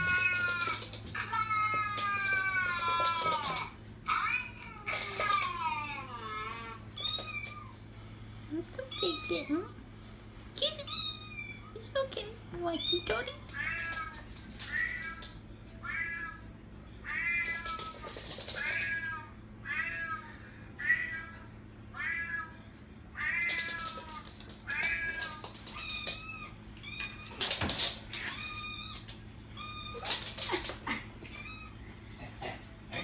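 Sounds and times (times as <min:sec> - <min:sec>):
cat meowing: 0:23.2 - 0:31.8.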